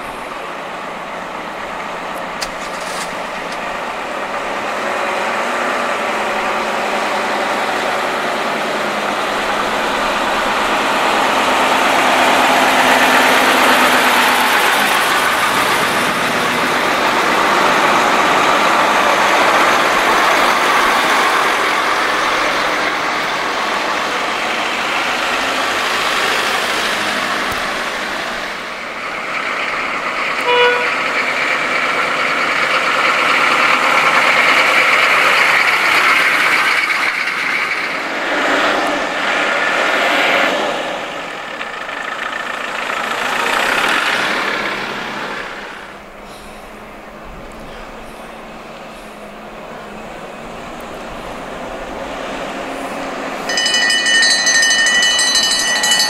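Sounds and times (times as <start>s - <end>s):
fire engines driving past: 0.0s - 56.0s
vehicle horn toot: 30.4s - 31.0s.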